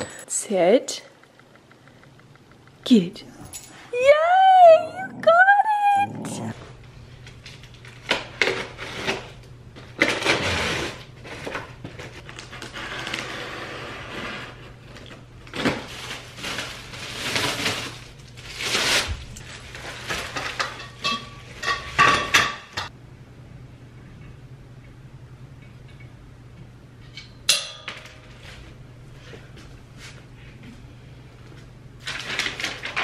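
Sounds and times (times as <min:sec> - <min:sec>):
cardboard and plastic rustling: 0:14.9 - 0:20.6, 0:32.0 - 0:33.0.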